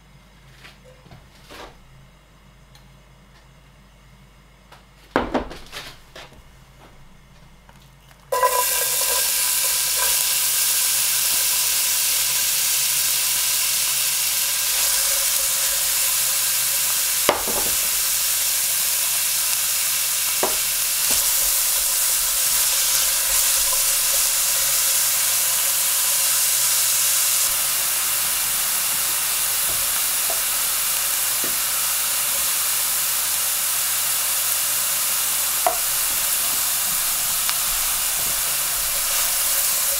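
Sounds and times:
onion sizzling in oil: 0:08.3 - 0:39.9.

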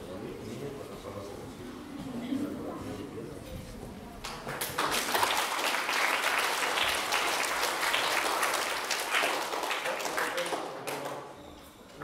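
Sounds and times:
audience applauding: 0:04.4 - 0:11.3.

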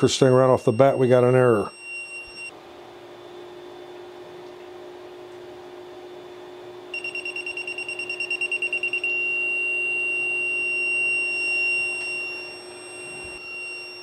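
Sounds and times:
continuous high alarm tone: 0:00.0 - 0:02.6, 0:06.9 - 0:14.0
rapid high beeps: 0:00.5 - 0:02.5, 0:07.0 - 0:14.0.

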